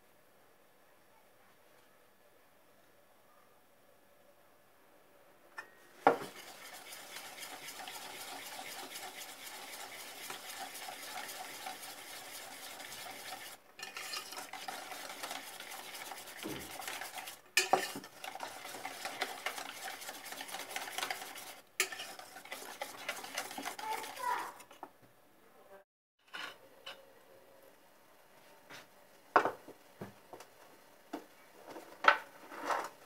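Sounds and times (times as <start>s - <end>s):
wire whisk clattering in metal bowl: 6.1s - 24.6s.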